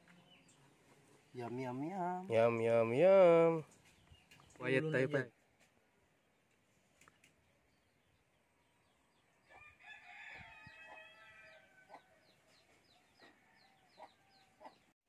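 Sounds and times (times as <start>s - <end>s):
small bird chirping: 3.6s - 5.2s
rooster crowing: 9.4s - 12.4s.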